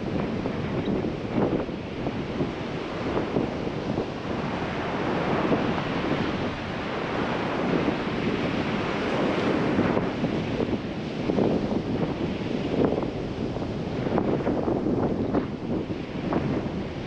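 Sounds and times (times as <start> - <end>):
surf breaking on beach: 0.0 - 17.0
wind buffeting microphone: 0.0 - 17.0.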